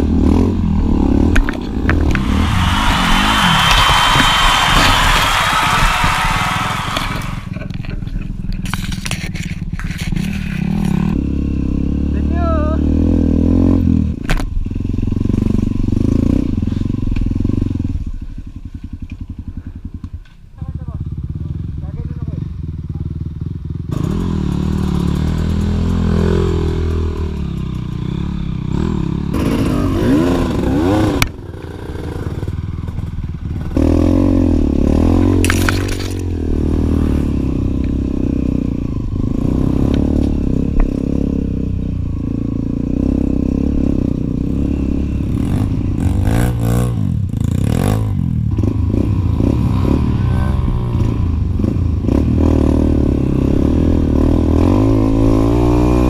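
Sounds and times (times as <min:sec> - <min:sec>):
dirt bike engine revving: 0:00.0 - 0:07.8, 0:21.0 - 0:56.0.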